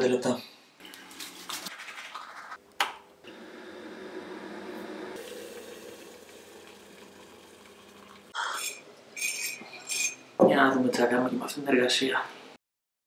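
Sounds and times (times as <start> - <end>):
hot water pouring into a mug: 3.3 - 8.4.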